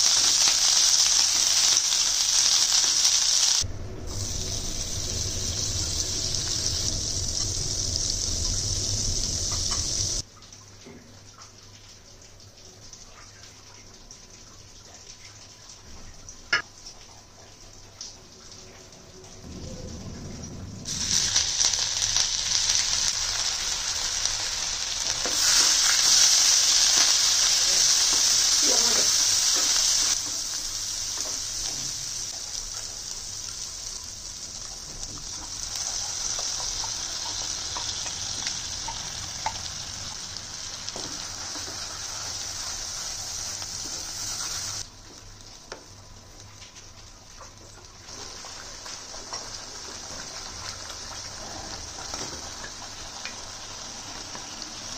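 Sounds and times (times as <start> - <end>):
spices sizzling in butter: 0.0 - 10.2, 20.9 - 45.8, 47.0 - 54.9.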